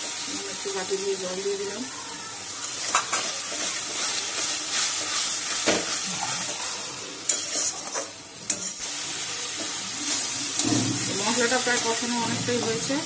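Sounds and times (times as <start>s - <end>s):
masala sizzling in a wok: 0.0s - 13.0s
metal spatula scraping wok: 2.6s - 9.0s.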